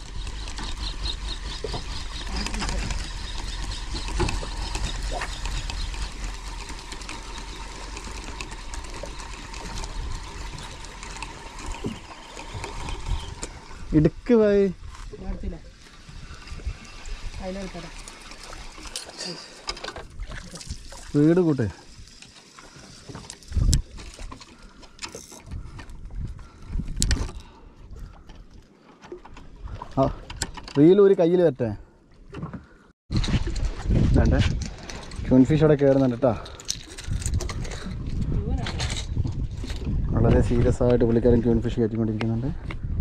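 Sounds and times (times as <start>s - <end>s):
fishing reel clicking: 0.0s - 14.7s, 22.0s - 25.5s
water lapping against boat: 0.0s - 31.0s.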